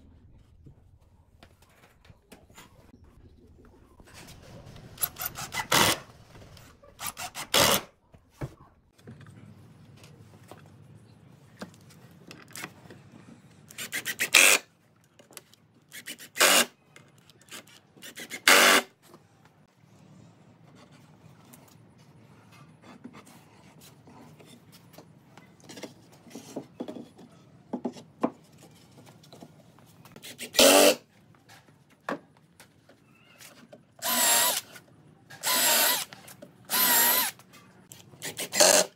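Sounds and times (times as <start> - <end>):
cordless drill driving screws: 18.2 - 18.8, 30.6 - 31.0, 34.0 - 34.8, 35.4 - 36.1, 36.7 - 37.4, 38.3 - 38.9.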